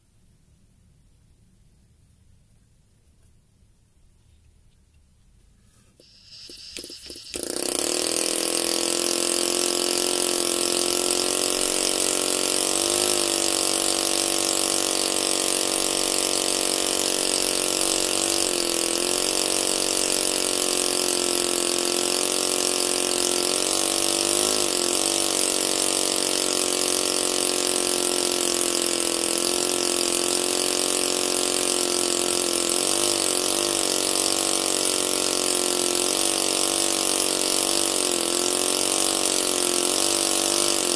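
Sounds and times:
hiss of air: 0:06.0 - 0:07.5
air engine buzzing hum: 0:06.0 - 0:40.9.

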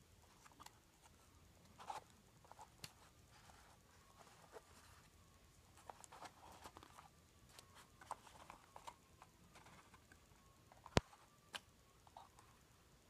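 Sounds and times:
paper matchbox handled by hand: 0:05.7 - 0:12.4.

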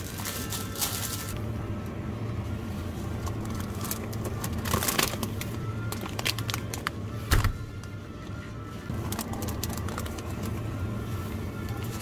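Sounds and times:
plastic bag crinkling: 0:00.0 - 0:01.4, 0:03.4 - 0:06.9, 0:08.9 - 0:10.6
low steady hum: 0:00.0 - 0:12.0.

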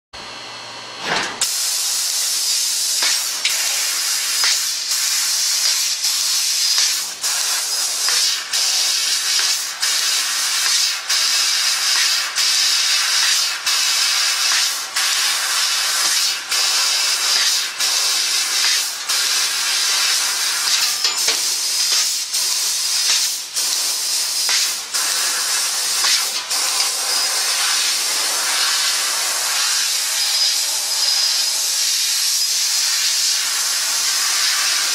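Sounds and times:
laser cutter gas jet hissing: 0:01.3 - 0:34.9.

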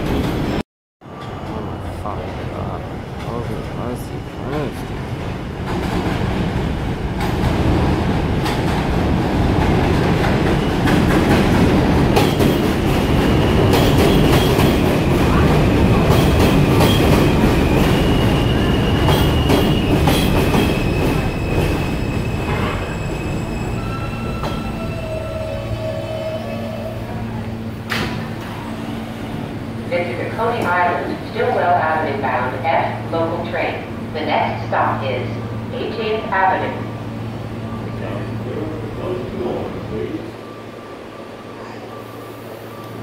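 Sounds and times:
subway train wheels clacking: 0:00.0 - 0:43.0
high steady wheel squeals: 0:20.7 - 0:27.2.

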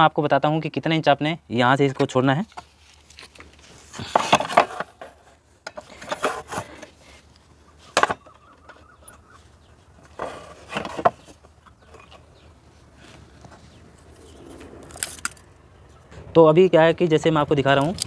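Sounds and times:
wood scraping on wood: 0:02.0 - 0:07.2, 0:10.0 - 0:15.5.

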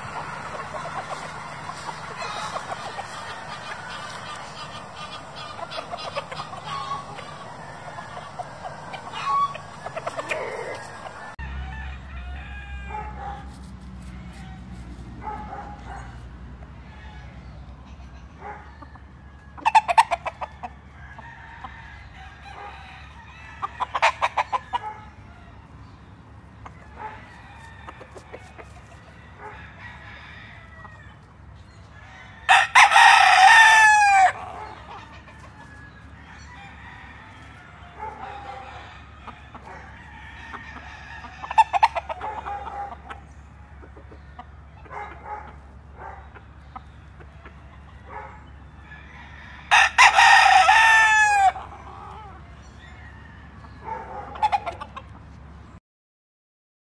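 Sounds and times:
rooster rapid calls: 0:00.0 - 0:13.2, 0:32.4 - 0:35.4, 0:49.0 - 0:52.4
rooster crowing: 0:00.0 - 0:13.4, 0:19.4 - 0:25.7, 0:29.0 - 0:31.3, 0:32.0 - 0:42.9, 0:47.9 - 0:54.6.

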